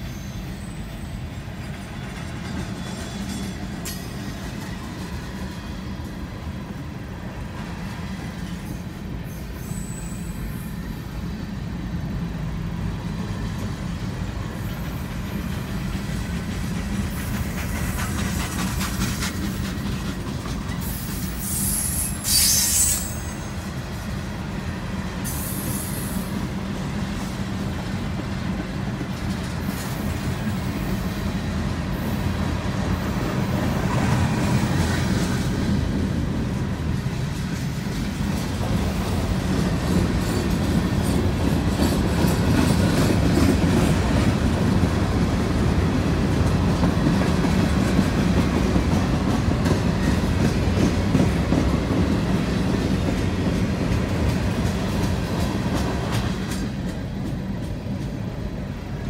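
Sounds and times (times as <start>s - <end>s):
wheel squeal screech: 0.0s - 1.2s, 9.3s - 10.7s, 20.8s - 23.5s
train wheels rumbling on rail: 0.0s - 59.0s.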